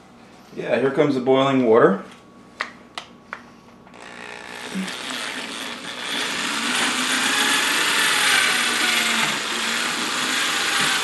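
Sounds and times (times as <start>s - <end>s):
electric drill mixer whirring: 3.9s - 11.0s.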